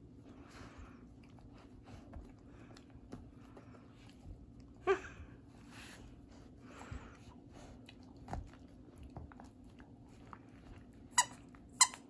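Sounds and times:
dog gnawing on bone: 7.7s - 11.8s.

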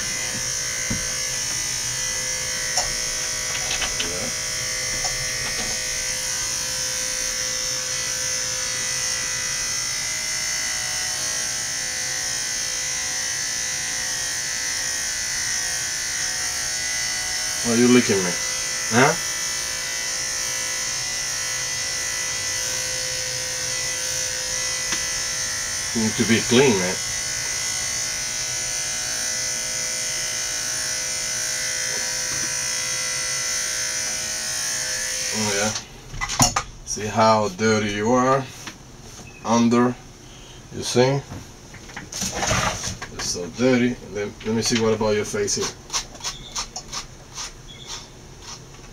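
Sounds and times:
electric clippers buzzing: 0.0s - 36.1s.

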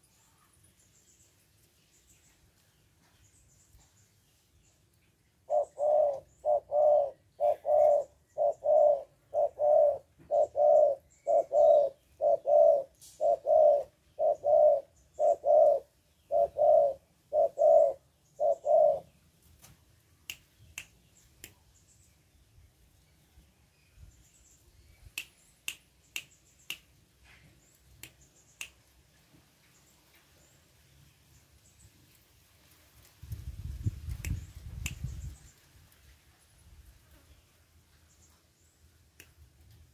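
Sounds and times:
dove cooing: 5.5s - 19.1s
finger snaps: 20.2s - 21.6s, 25.1s - 27.0s, 28.0s - 28.8s, 34.1s - 35.1s, 39.2s - 39.4s.

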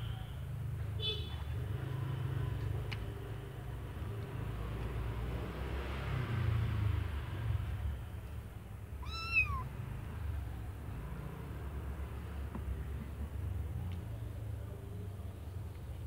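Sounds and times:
kitten meowing: 9.0s - 9.7s.

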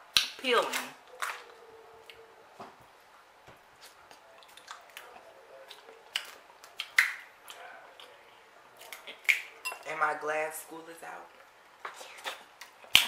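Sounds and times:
wet squishy chewing: 3.8s - 8.2s
crab shell cracking and clicking: 6.1s - 7.3s.

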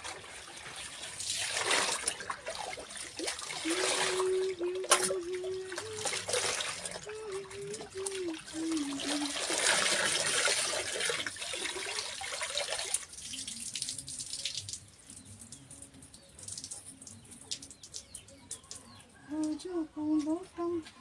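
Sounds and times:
water splashing into tub: 0.0s - 14.9s
water dripping: 0.0s - 20.9s.

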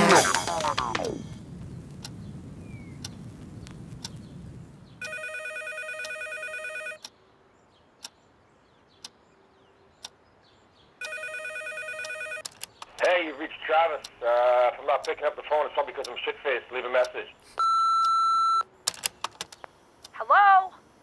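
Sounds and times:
low rumble: 0.0s - 5.1s
telephone ringing: 5.0s - 7.0s, 11.0s - 12.4s, 17.6s - 18.6s.

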